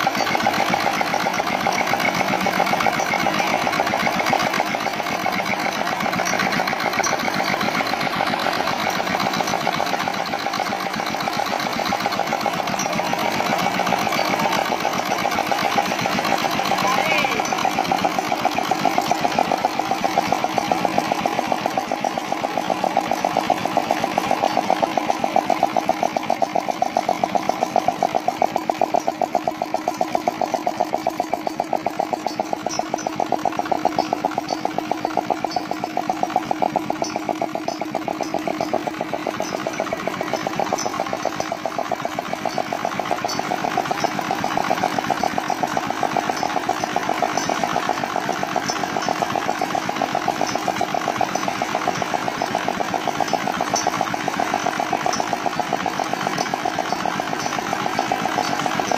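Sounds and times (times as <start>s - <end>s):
diesel engine knocking: 0.0s - 58.9s.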